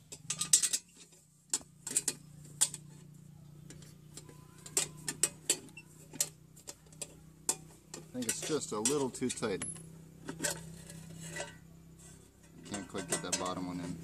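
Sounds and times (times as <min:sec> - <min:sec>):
low steady hum: 0:00.0 - 0:14.0
metal clicks and knocks: 0:12.4 - 0:14.0.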